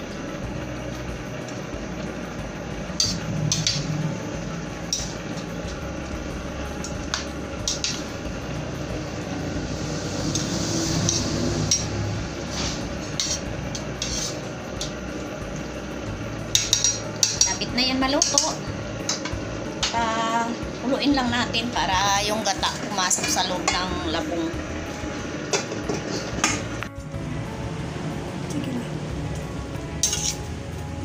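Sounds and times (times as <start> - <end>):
steady low hum: 0.0 - 31.0
metal spatula scraping a wok: 3.0 - 5.5, 9.4 - 14.9, 25.5 - 26.7, 30.0 - 30.5.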